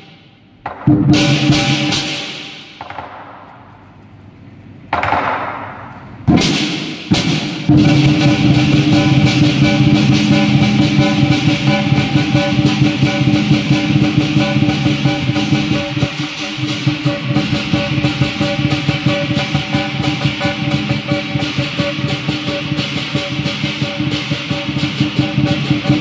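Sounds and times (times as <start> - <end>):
big drum beating: 0.0 - 3.3, 4.9 - 26.0
crash cymbals: 6.3 - 26.0.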